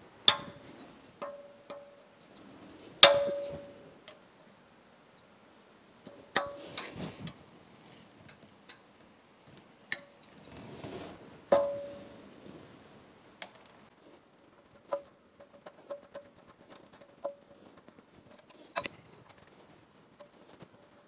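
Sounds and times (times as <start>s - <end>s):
light metal ticks and scraping: 0.3s - 4.2s, 6.0s - 8.9s, 13.4s - 21.0s.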